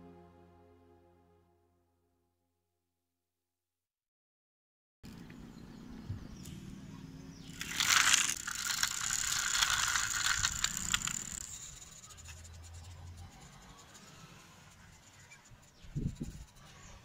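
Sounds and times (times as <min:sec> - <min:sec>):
toy truck wheels whirring: 0:07.5 - 0:17.0.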